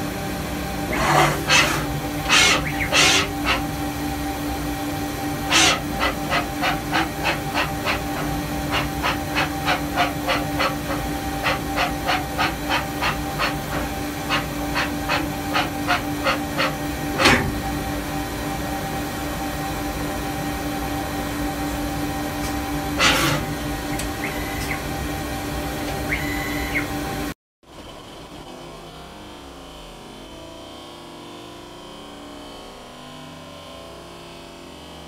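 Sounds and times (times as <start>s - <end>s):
machine humming: 0.0s - 28.8s
hissing air puffs: 0.8s - 3.9s.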